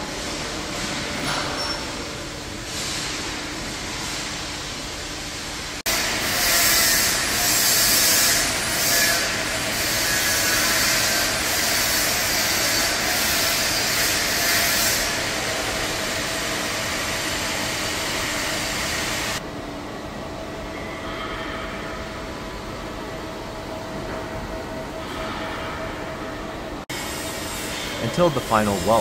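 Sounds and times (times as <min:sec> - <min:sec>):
low steady machinery hum: 0:15.0 - 0:29.0
machinery rushing hiss: 0:26.9 - 0:29.0.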